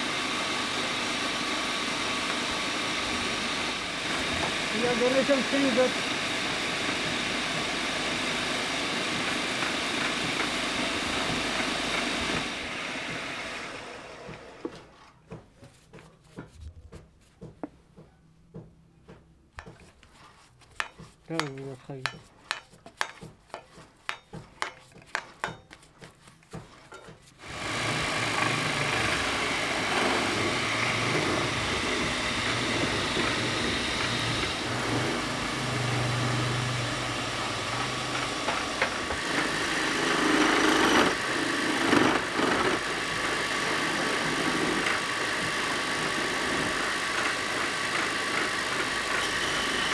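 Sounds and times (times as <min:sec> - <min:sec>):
wood lathe running: 0:00.0 - 0:14.9, 0:27.4 - 0:49.9.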